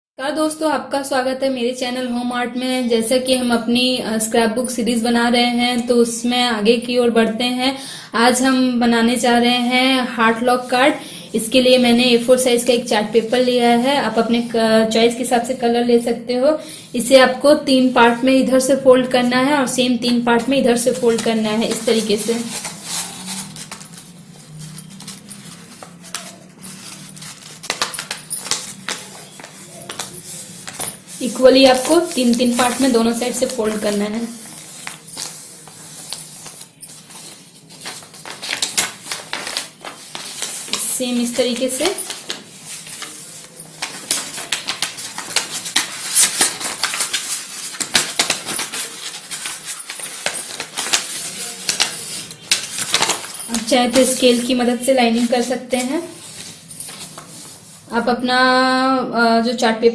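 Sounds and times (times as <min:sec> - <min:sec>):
paper rustling and crackling: 0:20.8 - 0:55.3, 0:56.1 - 0:57.8
paper clicks when folded: 0:34.5 - 0:40.8, 0:42.0 - 0:53.4.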